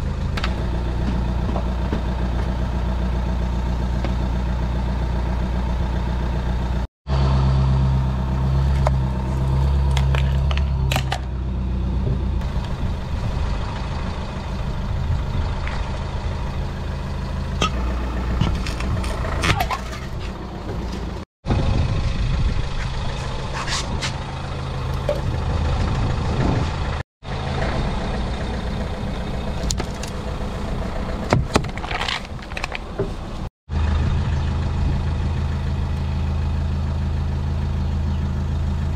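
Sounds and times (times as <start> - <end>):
car engine idling: 0.0 - 38.9.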